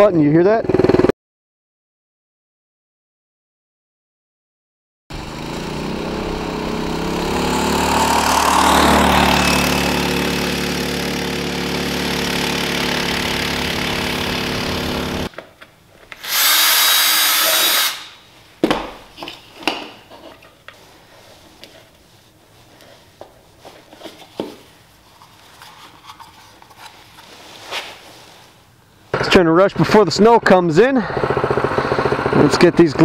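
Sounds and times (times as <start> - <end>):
go-kart engine running: 0.6 - 1.1, 5.1 - 15.3, 30.4 - 33.0
loud hiss: 16.2 - 18.2.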